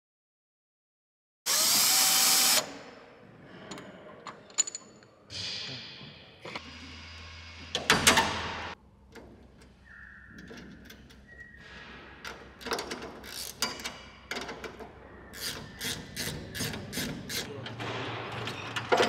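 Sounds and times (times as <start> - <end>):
cordless drill running: 1.5 - 2.6.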